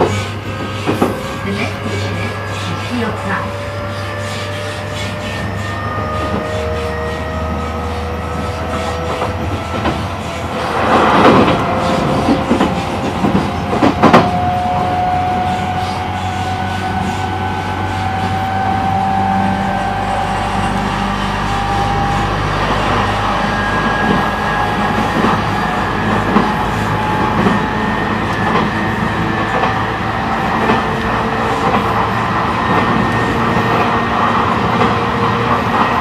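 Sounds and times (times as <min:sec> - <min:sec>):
wheels rumbling on rails: 0:00.0 - 0:36.0.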